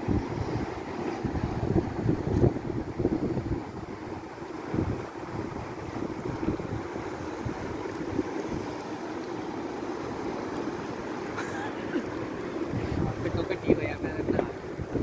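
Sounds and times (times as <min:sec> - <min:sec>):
wind gusting on microphone: 0:00.0 - 0:08.8, 0:12.6 - 0:15.0.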